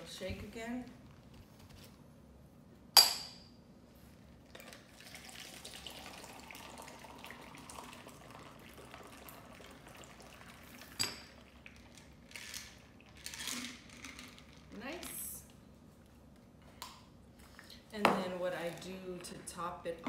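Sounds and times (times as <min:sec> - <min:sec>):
liquid pouring into plastic cup: 0:04.5 - 0:13.2.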